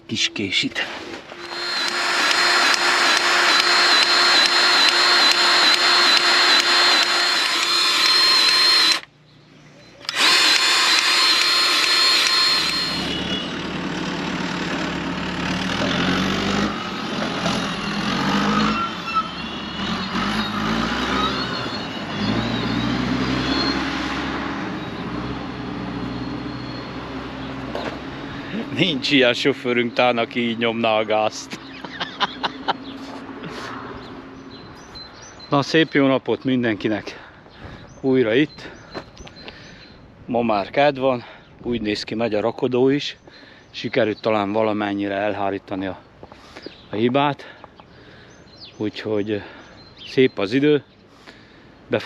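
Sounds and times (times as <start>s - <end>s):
power tool whining: 1.1s - 9.1s, 10.0s - 34.1s
engine revving unevenly: 1.4s - 9.1s, 10.1s - 34.8s.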